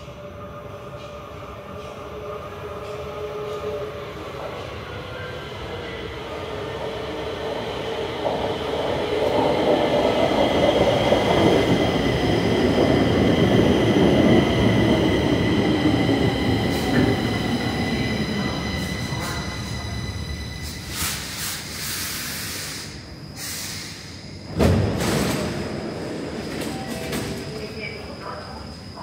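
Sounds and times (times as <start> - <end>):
train wheels rumbling on rails: 0.8 - 22.9, 23.6 - 28.4.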